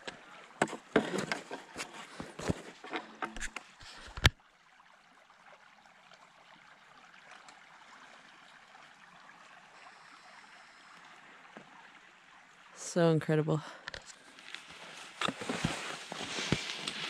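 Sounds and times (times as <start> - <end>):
creek babbling: 0.0 - 17.0.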